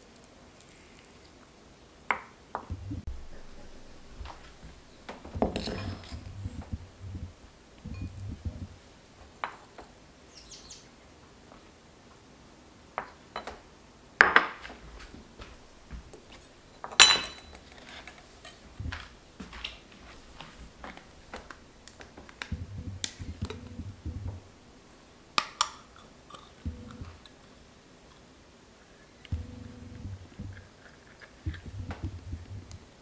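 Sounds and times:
spoon and bowls clinking: 0:05.1 - 0:06.3, 0:16.3 - 0:19.1
tin can clinking on bowl: 0:05.1 - 0:06.3.

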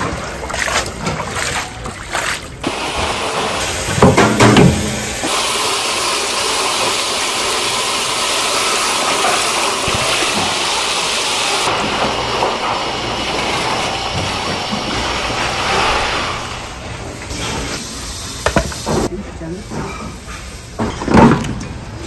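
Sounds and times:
running tap water splashing: 0:00.0 - 0:15.6.

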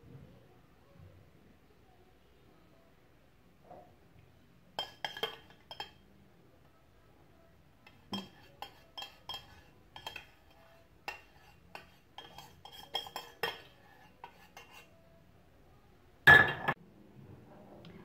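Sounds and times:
metal spoon scraping saucepan: 0:04.8 - 0:06.0, 0:07.8 - 0:15.0.

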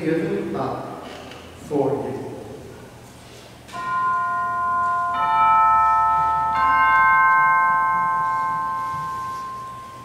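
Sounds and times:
altar chimes ringing: 0:03.7 - 0:10.0.

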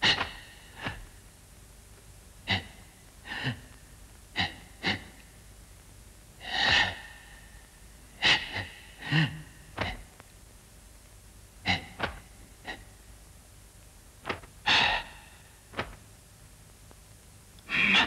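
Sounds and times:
low voiced grunt: 0:08.2 - 0:10.1, 0:11.6 - 0:12.8, 0:17.7 - 0:18.0.

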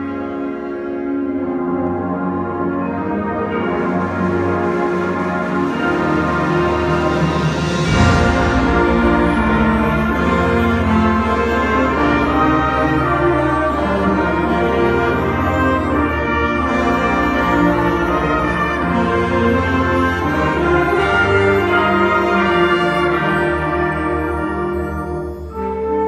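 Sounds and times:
brass: 0:00.0 - 0:26.0
concert band playing chords: 0:05.6 - 0:23.6.

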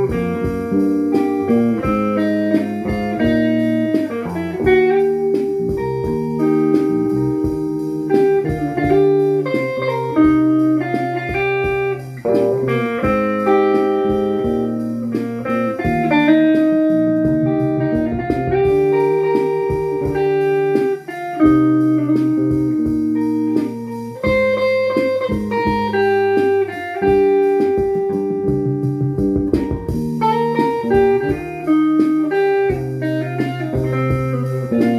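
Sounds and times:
two guitars playing: 0:00.0 - 0:34.9.

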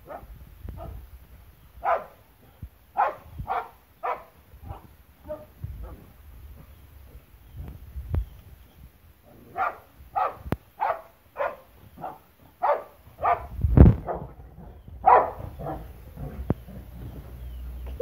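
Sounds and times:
dog barking: 0:00.0 - 0:01.0, 0:01.8 - 0:02.2, 0:03.0 - 0:06.0, 0:09.3 - 0:16.4.

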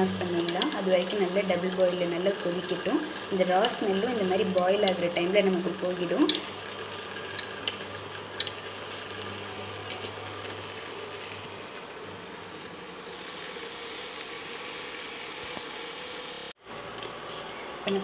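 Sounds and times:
induction cooktop buzzing hum: 0:00.0 - 0:18.0
spoon clicking on glass bowl: 0:07.4 - 0:07.8, 0:09.9 - 0:10.2.

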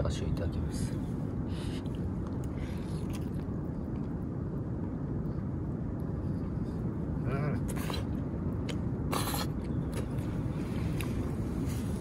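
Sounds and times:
low background rumble: 0:00.0 - 0:12.0
slurps and mouth sounds: 0:07.6 - 0:10.2.

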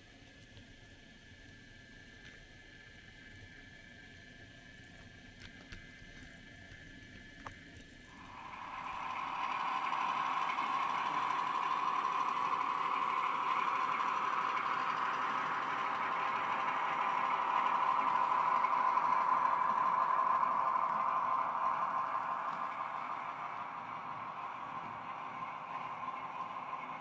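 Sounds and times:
model train rattling whir: 0:07.8 - 0:27.0.

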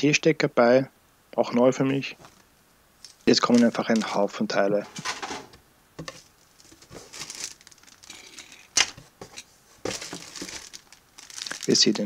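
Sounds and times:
plastic bags crinkling: 0:03.0 - 0:12.0.

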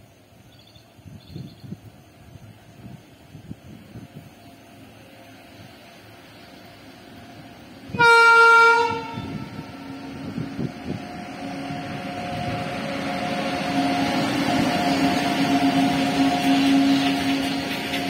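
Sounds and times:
locomotive hum: 0:00.0 - 0:18.0
train wheels rumbling on rails: 0:00.0 - 0:18.0
locomotive horn blast: 0:07.9 - 0:10.3.

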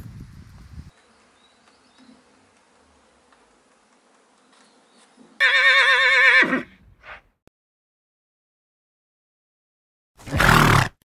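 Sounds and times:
horse whinnying: 0:05.4 - 0:06.8, 0:10.2 - 0:11.0.

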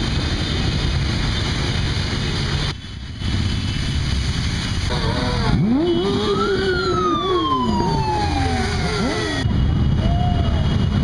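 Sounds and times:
engines revving: 0:00.0 - 0:10.0
low road rumble: 0:00.0 - 0:11.0
high wailing tone: 0:04.9 - 0:10.3.

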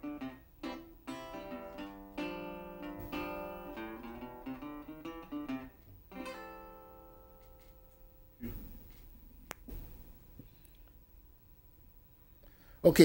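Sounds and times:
acoustic guitar music: 0:00.0 - 0:09.2.

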